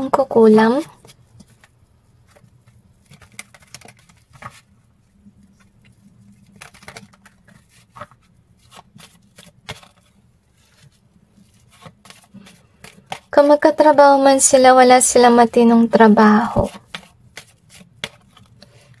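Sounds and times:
cards being shuffled: 0:00.9 - 0:04.8, 0:05.4 - 0:13.4, 0:16.5 - 0:19.0.

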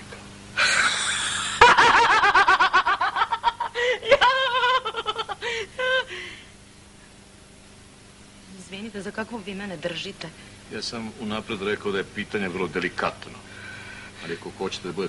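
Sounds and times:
woman laughing loudly: 0:00.6 - 0:06.4.

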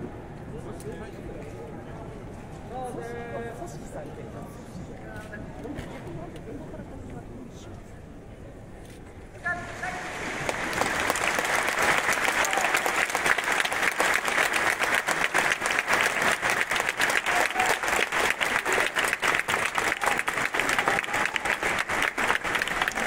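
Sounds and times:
crowd applauding: 0:09.4 - 0:23.0.

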